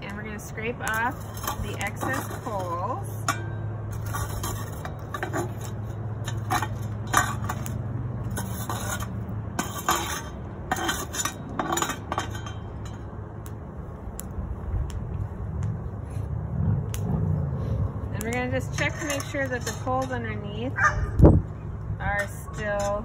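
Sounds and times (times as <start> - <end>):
shovel scraping coals off metal lid: 0.1 - 13.1, 17.6 - 20.8, 22.0 - 23.0.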